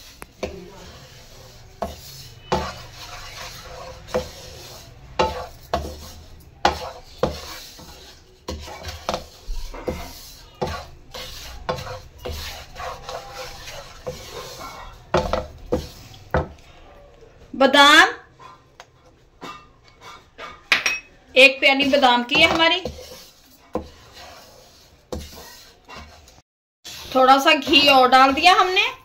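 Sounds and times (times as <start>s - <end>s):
wooden spatula scraping a pan: 0.0s - 16.9s, 17.7s - 29.0s
spatula knocking on pan: 5.2s - 6.0s, 6.6s - 7.9s, 8.5s - 16.6s.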